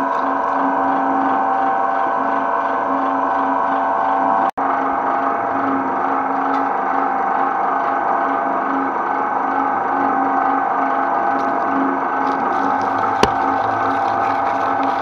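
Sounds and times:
shredder motor hum: 0:09.8 - 0:15.0.

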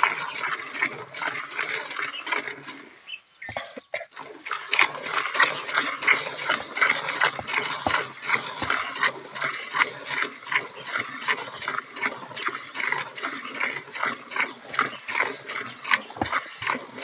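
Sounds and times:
milk squirting into metal bucket: 0:04.2 - 0:17.0.

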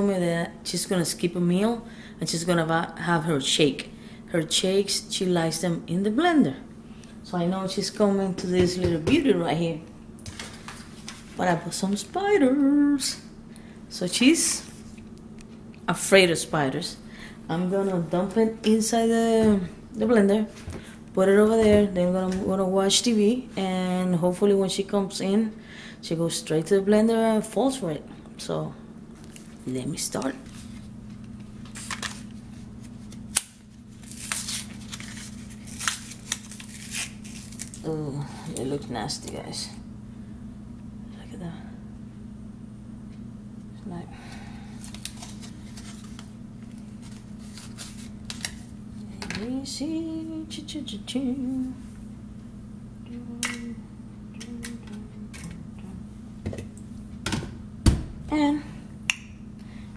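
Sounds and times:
steady low hum: 0:00.0 - 0:59.9
plastic packaging crinkling: 0:31.6 - 0:37.9, 0:44.8 - 0:48.7.

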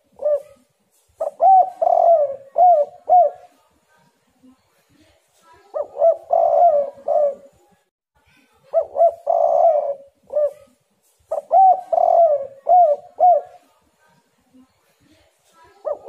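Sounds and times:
dove cooing: 0:00.0 - 0:03.6, 0:05.7 - 0:07.6, 0:08.7 - 0:13.7, 0:15.8 - 0:16.0.

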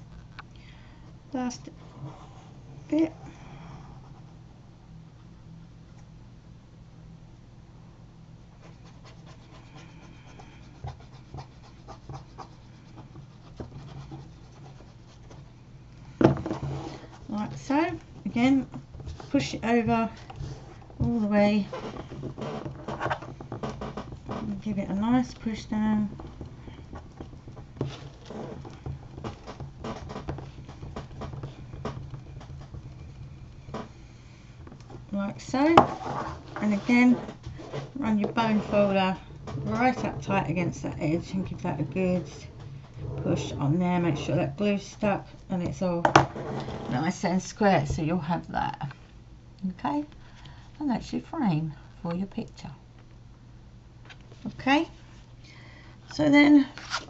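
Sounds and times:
steady low hum: 0:00.0 - 0:57.0
paper scraping and rustling: 0:56.7 - 0:57.0.

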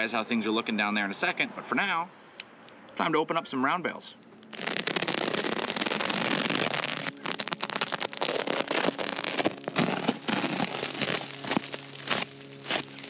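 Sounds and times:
plastic wrap crinkling: 0:04.4 - 0:13.0.

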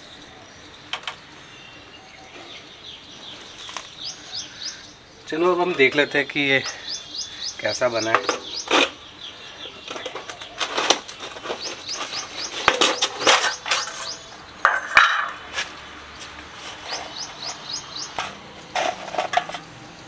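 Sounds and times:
small bird chirping: 0:00.0 - 0:14.8, 0:15.7 - 0:18.8.

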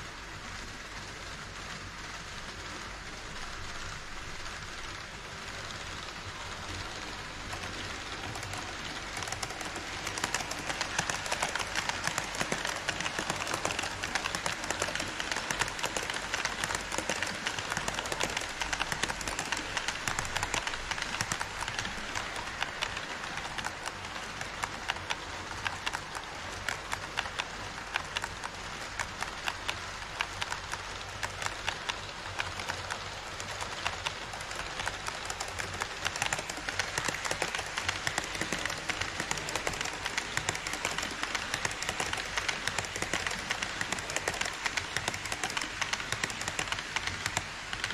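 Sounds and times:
model train rolling rattle: 0:00.0 - 0:47.9
wheels clicking over track joints: 0:00.0 - 0:47.9.

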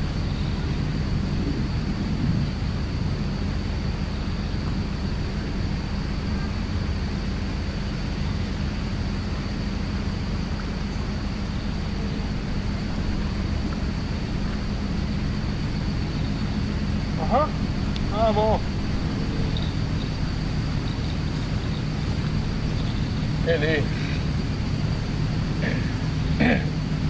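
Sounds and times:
wind buffeting microphone: 0:00.0 - 0:27.0
thin high tone: 0:15.8 - 0:26.6.

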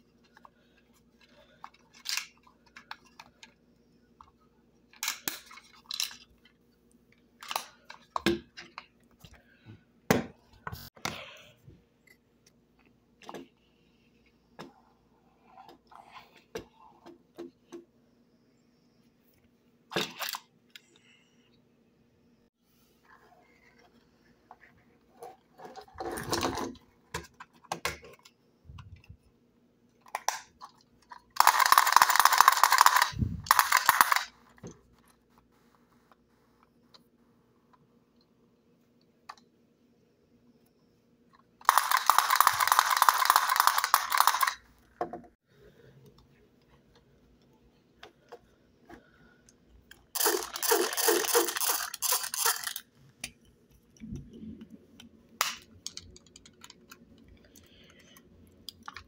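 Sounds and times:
loud rattling noise bursts: 0:31.4 - 0:34.3, 0:41.7 - 0:44.6, 0:50.2 - 0:52.8
plastic toys clicking on wooden table: 0:31.4 - 0:34.3, 0:41.6 - 0:44.6, 0:50.2 - 0:52.8, 0:55.4 - 0:57.9.

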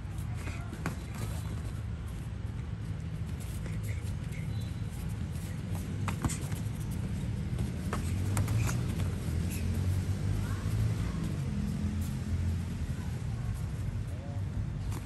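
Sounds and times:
bare feet on foam mat: 0:00.0 - 0:13.8.

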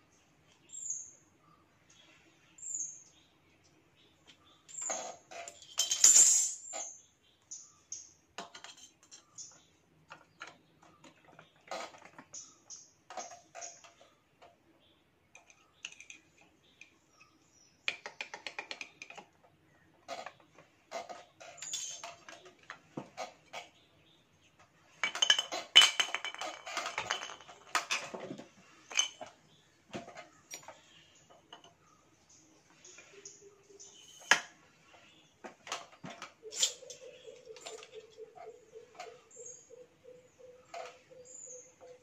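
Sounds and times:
metal parts clicking and clattering: 0:04.6 - 0:07.0, 0:08.4 - 0:14.1, 0:15.4 - 0:16.9, 0:20.1 - 0:23.8, 0:24.9 - 0:31.7, 0:35.6 - 0:39.5.

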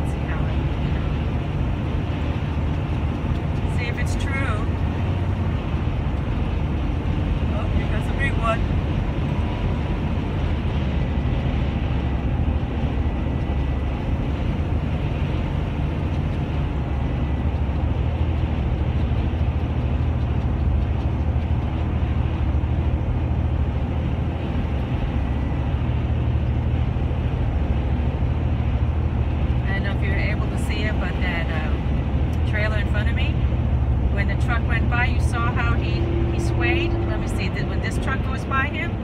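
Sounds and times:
road and engine rumble inside vehicle: 0:00.0 - 0:39.0.

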